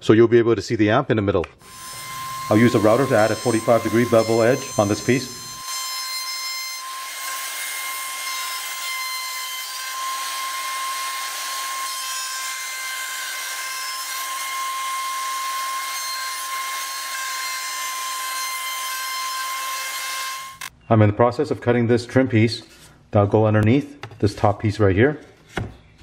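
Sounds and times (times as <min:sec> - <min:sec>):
router bit cutting wood: 0:01.6 - 0:20.7
router whining: 0:01.6 - 0:20.7.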